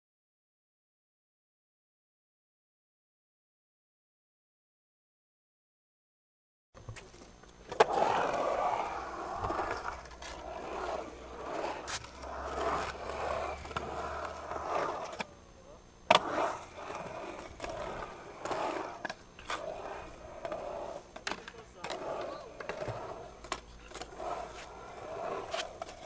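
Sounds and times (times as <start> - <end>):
skateboard clacks: 6.8 - 15.3, 16.1 - 26.0
skateboard wheels rolling on concrete: 6.8 - 26.0.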